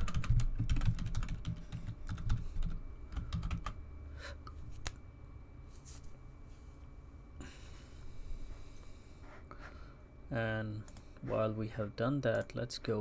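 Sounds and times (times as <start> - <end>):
typing on computer keyboard: 0.0 - 3.8.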